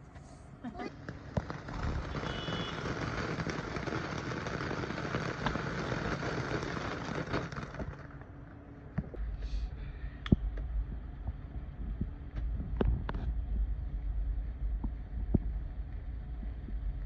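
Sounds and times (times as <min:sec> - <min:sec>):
firework fountain crackling hiss: 0:00.6 - 0:09.2
firework pops: 0:00.9 - 0:08.3
wind rumble on microphone: 0:09.0 - 0:17.0.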